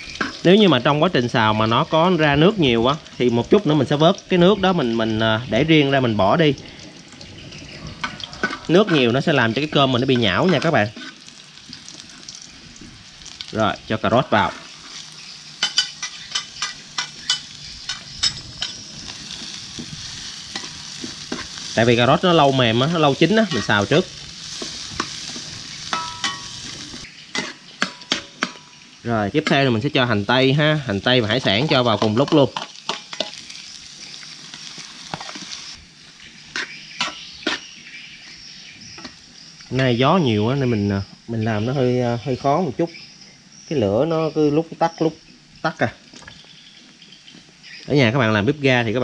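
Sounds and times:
carrots sizzling in hot oil: 0:00.0 - 0:49.0
metal spoon scraping a pan: 0:07.8 - 0:12.4, 0:14.4 - 0:21.8, 0:22.4 - 0:28.8, 0:36.5 - 0:37.8
metal spoon scraping a wok: 0:07.9 - 0:09.4, 0:10.0 - 0:11.4, 0:23.4 - 0:28.7, 0:36.5 - 0:37.8.

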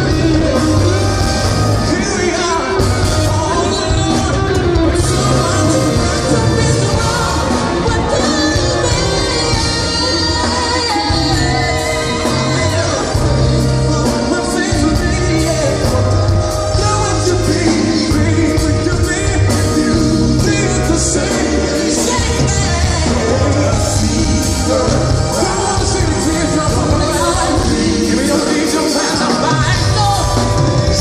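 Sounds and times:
live band playing: 0:00.0 - 0:31.0
man singing into a microphone: 0:00.0 - 0:31.0.

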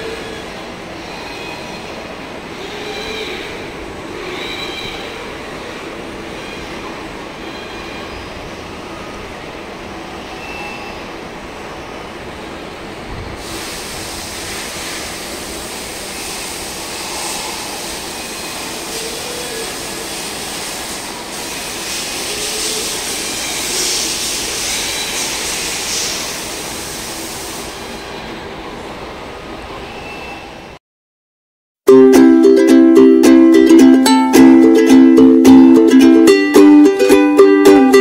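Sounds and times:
machinery noise: 0:13.0 - 0:28.3, 0:32.2 - 0:38.0
hiss: 0:13.4 - 0:28.2.

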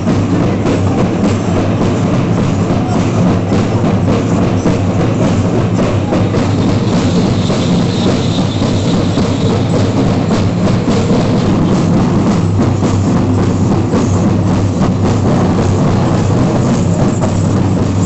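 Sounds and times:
drum-led percussion music: 0:00.0 - 0:18.0.

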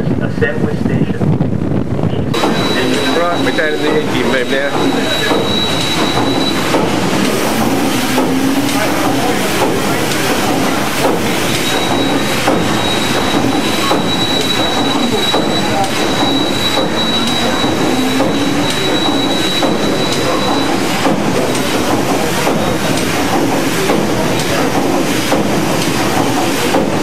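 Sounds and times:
steam engine clattering: 0:02.3 - 0:27.0
thin high whine: 0:02.4 - 0:21.1.

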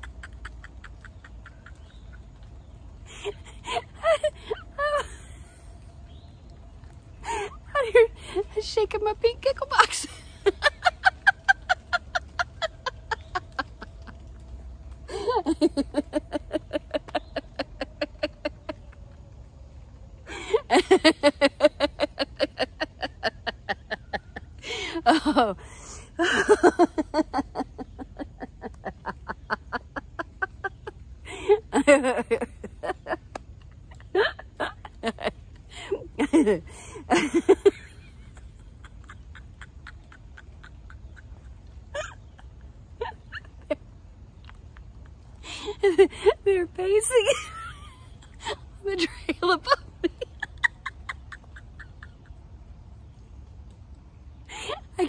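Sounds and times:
woman laughing in pulses: 0:00.0 - 0:05.9, 0:09.8 - 0:19.3, 0:20.2 - 0:53.4.

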